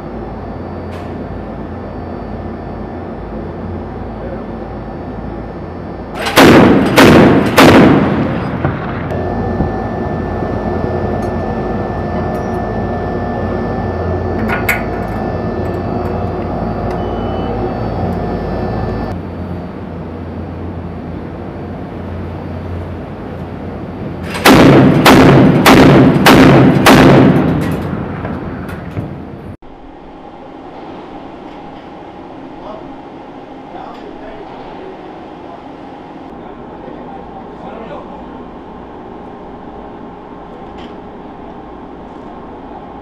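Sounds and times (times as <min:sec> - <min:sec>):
steady low hum: 0:00.0 - 0:43.0
deck gun firing shots: 0:06.2 - 0:08.2, 0:24.4 - 0:27.5.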